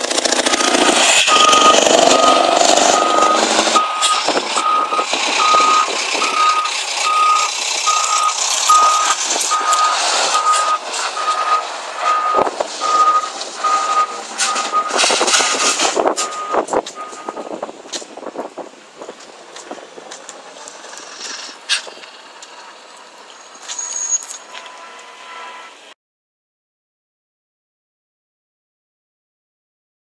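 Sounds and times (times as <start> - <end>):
truck engine noise: 0.0 - 26.0
truck reversing alarm beeping: 0.2 - 17.6, 23.3 - 25.9.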